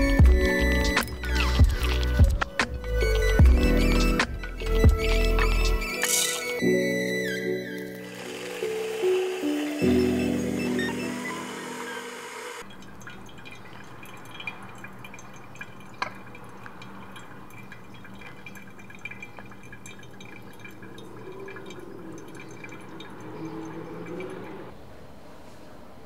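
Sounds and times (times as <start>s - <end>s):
coffee dripping: 0.0s - 3.3s, 7.7s - 24.7s
music: 0.0s - 12.6s.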